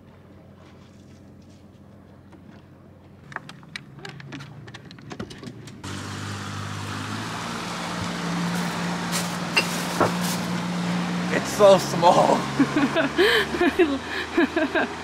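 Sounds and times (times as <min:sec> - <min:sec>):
outboard motor humming: 0:05.8 - 0:15.0.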